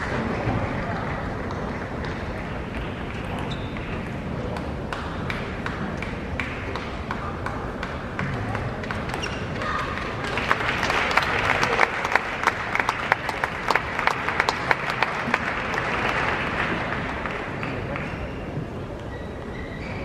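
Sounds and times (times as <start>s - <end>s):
audience applauding: 9.6s - 18.3s.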